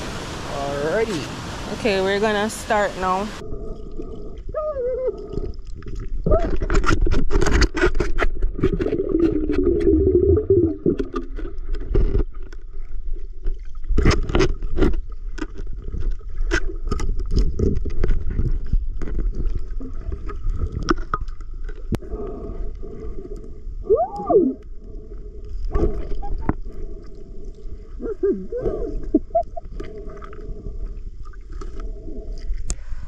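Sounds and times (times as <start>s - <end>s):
muffled underwater rumble: 1.8s - 33.0s
sharp clicks and knocks underwater: 3.7s - 22.1s, 25.4s - 27.8s.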